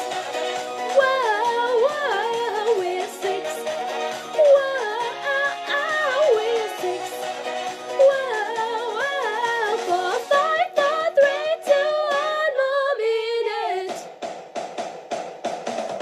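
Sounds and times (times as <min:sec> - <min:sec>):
women singing in close harmony: 0:00.9 - 0:07.4, 0:08.0 - 0:14.0.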